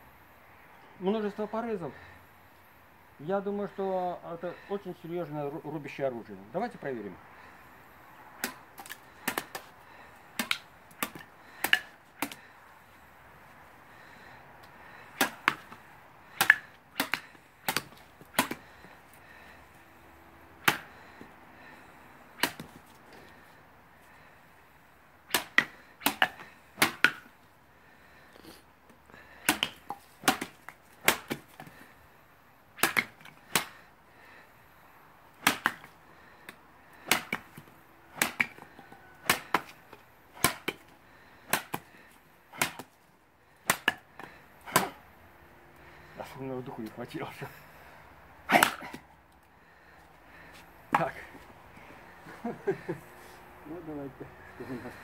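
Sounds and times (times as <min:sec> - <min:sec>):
sabre chopping through wood: 0:08.4 - 0:09.7, 0:10.3 - 0:12.5, 0:15.1 - 0:18.8, 0:20.6 - 0:21.0, 0:22.4 - 0:22.8, 0:25.3 - 0:27.3, 0:29.4 - 0:31.8, 0:32.8 - 0:33.8, 0:35.3 - 0:41.9, 0:42.5 - 0:42.9, 0:43.6 - 0:45.0, 0:48.5 - 0:49.0, 0:50.9 - 0:51.2.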